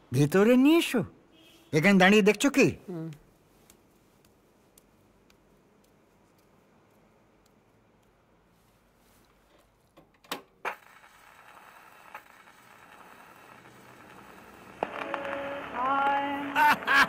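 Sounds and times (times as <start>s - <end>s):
record hiss: 0.0s - 17.0s
old record playing held notes: 11.5s - 17.0s.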